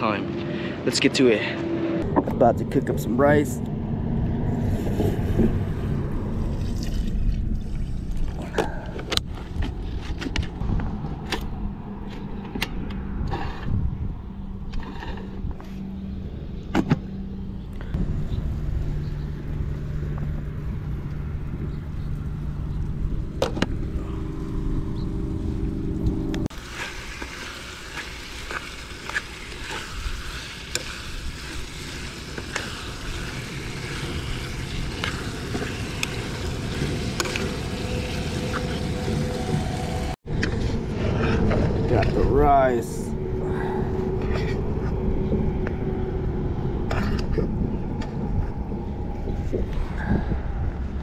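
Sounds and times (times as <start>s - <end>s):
low steady rumble: 2.0s - 51.0s
chicken sizzling in a pan: 26.5s - 40.0s.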